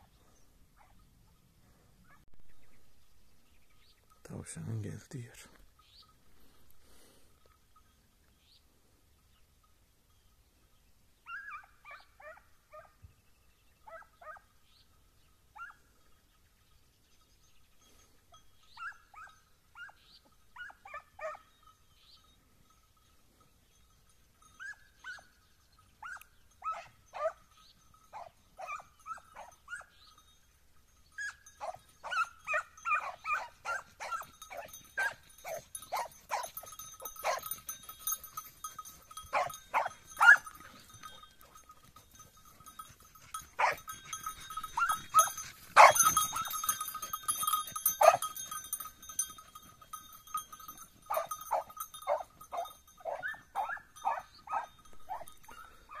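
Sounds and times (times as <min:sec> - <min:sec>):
hounds baying and yelping: 0:00.1 - 0:01.1, 0:11.2 - 0:13.0, 0:13.8 - 0:14.6, 0:15.5 - 0:16.1, 0:17.9 - 0:22.6, 0:24.2 - 0:30.3, 0:31.0 - 0:56.0.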